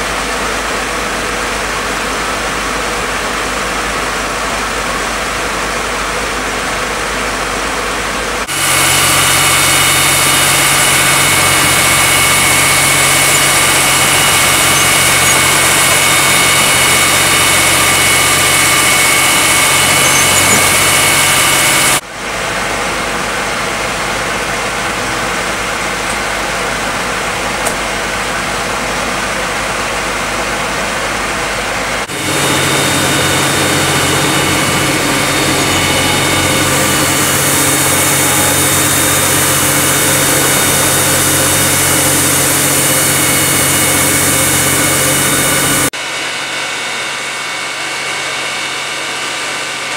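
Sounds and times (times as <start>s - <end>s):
fire truck engines and pumps running: 0.0s - 49.9s
water jets hissing: 32.1s - 45.9s.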